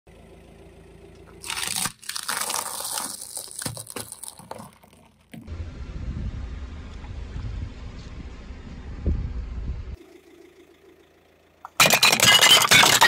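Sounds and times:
plastic cracking and crunching: 1.4s - 5.4s.

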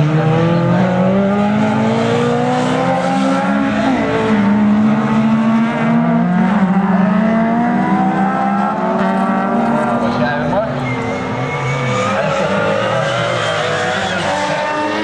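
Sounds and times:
race car engines revving: 0.0s - 15.0s.

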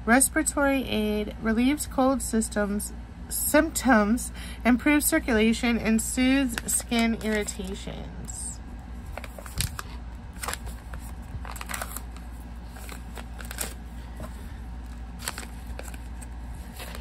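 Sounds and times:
packaging rustling and crinkling: 6.5s - 7.8s, 9.0s - 17.0s.

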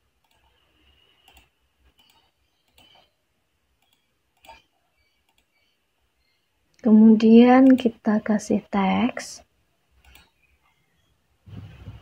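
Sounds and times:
computer mouse clicks: 0.2s - 3.1s, 3.7s - 5.8s, 10.0s - 10.4s.

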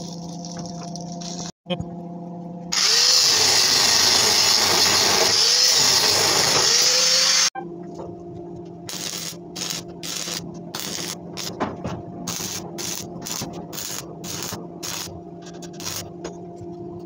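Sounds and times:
arc welding crackling: 2.8s - 7.5s, 8.9s - 11.6s, 12.3s - 16.2s
electrical hum: 7.5s - 17.0s.

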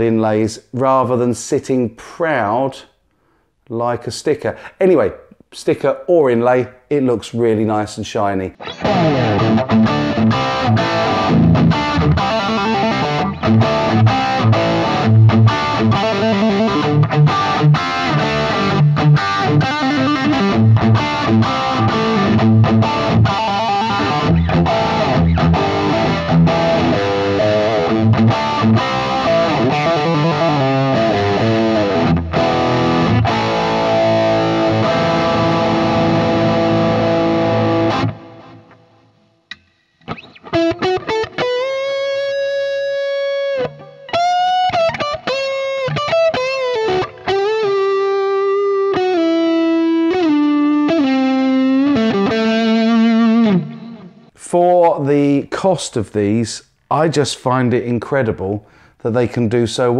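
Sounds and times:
overdriven electric guitar: 8.6s - 54.4s.

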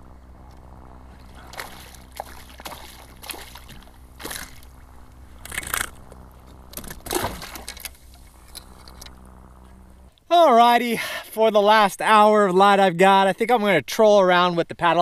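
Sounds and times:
fish splashing and thrashing: 1.0s - 9.0s.

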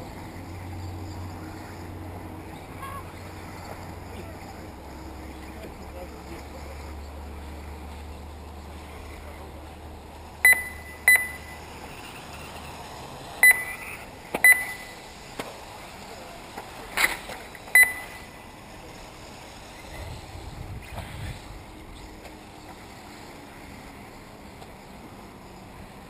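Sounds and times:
outdoor background noise: 0.0s - 26.0s
short electronic beeps: 10.4s - 11.6s, 13.4s - 15.0s, 17.7s - 18.3s.

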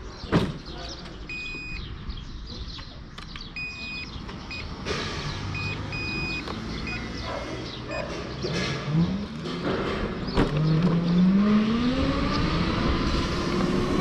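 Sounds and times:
wind and road rumble: 0.0s - 14.0s
high electronic beeps: 1.3s - 1.9s, 3.5s - 4.8s, 5.5s - 7.2s.

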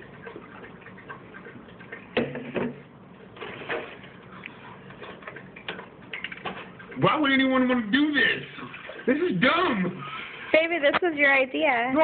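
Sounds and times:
plastic jug clicks and knocks: 2.2s - 2.8s.

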